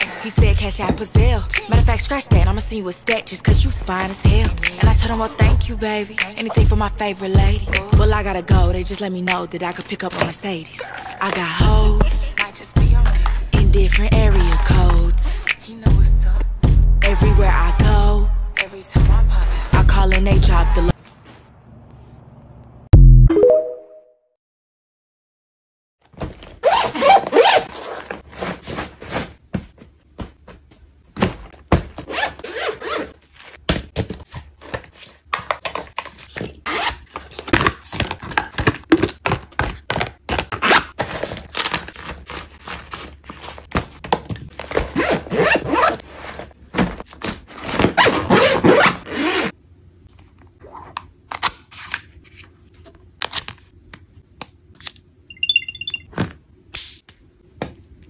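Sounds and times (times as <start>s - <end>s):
zipper zipping: 26.6s - 28.2s, 32.1s - 33.2s, 44.8s - 46.5s, 47.5s - 49.6s.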